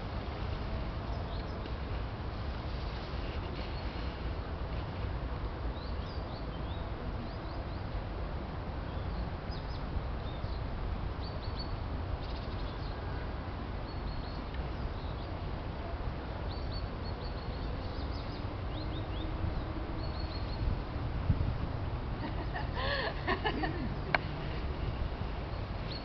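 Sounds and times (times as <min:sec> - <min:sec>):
small birds chirping: 0:16.5 - 0:20.8, 0:25.4 - 0:26.0.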